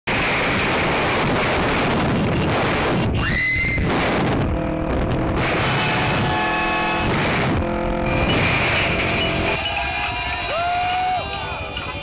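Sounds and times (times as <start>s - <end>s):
wind rushing on microphone: 0.1s - 6.4s
motorcycle road noise: 0.1s - 12.0s
held pitched tones: 3.1s - 10.1s
rising tone: 3.6s - 9.8s.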